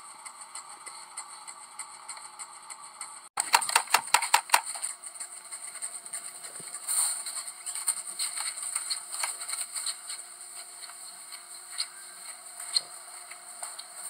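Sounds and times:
steady high hiss: 5.7s - 14.0s.

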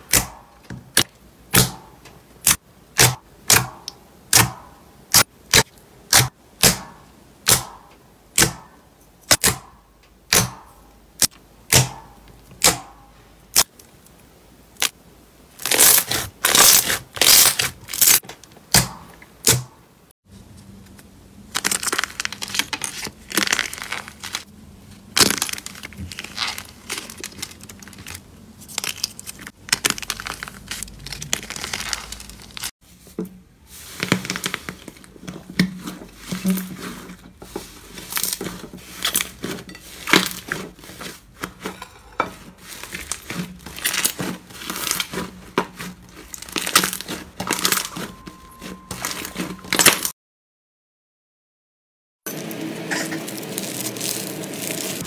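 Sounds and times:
slime crackling and crunching: 15.6s - 18.2s, 21.5s - 32.8s, 37.7s - 41.8s, 42.4s - 50.1s, 52.9s - 55.0s.

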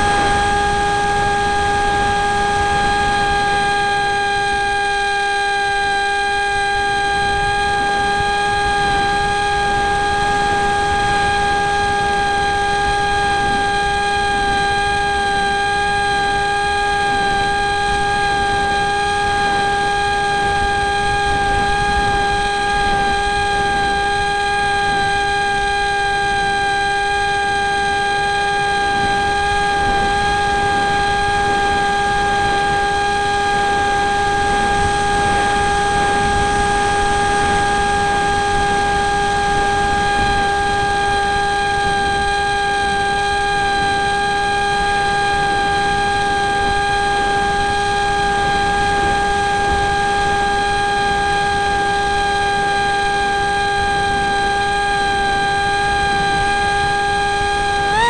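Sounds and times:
wind rushing over microphone: 0.0s - 4.7s, 17.0s - 25.6s, 28.6s - 42.3s
electric motor and propeller whine: 0.0s - 58.0s.

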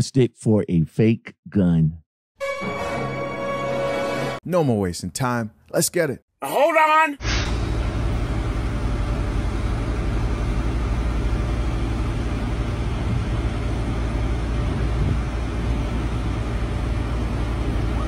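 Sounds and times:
idling diesel trucks rumble: 7.5s - 18.0s.

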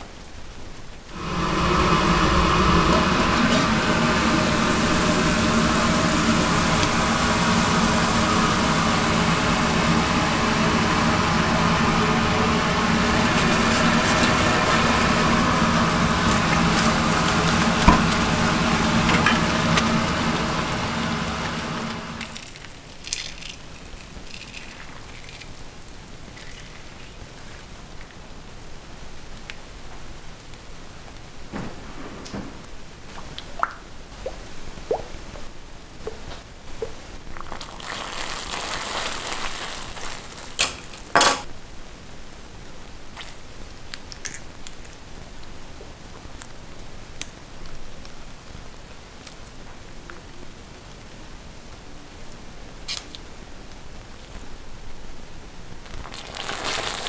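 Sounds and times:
machine humming: 1.1s - 22.5s.

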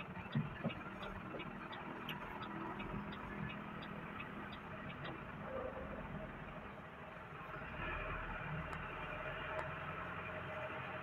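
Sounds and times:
turn signal ticking: 0.0s - 5.5s, 8.6s - 11.0s
car engine and road noise: 0.0s - 11.0s.

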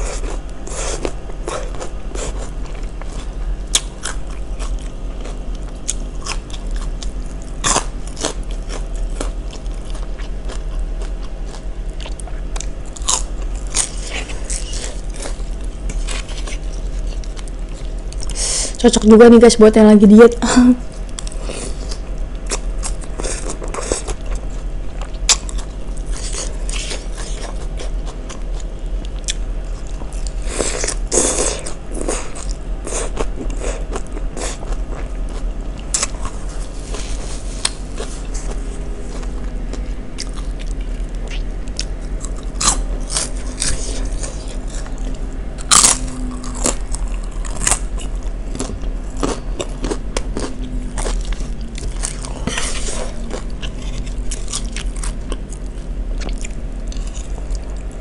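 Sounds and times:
chewing crunchy salad: 0.0s - 19.0s, 20.8s - 58.0s.

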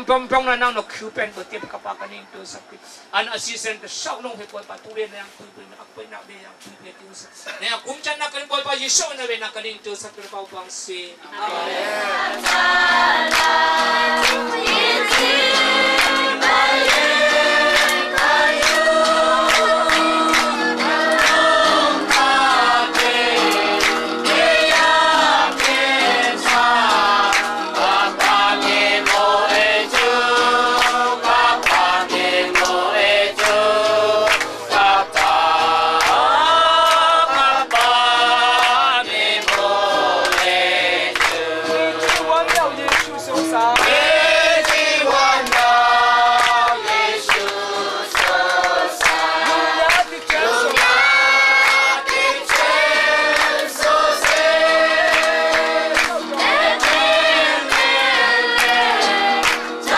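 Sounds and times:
congregation singing a hymn: 11.3s - 59.9s
hand-clapping in time: 12.2s - 59.9s.

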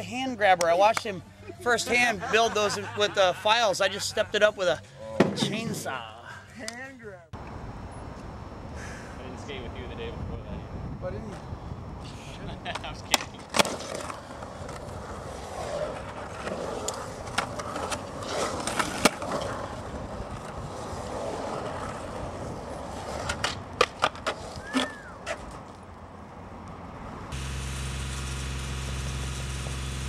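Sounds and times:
skateboard wheels rolling on concrete: 7.4s - 30.0s
skateboard clacking on concrete: 12.7s - 14.9s, 23.1s - 25.8s
engine running: 27.3s - 30.0s.

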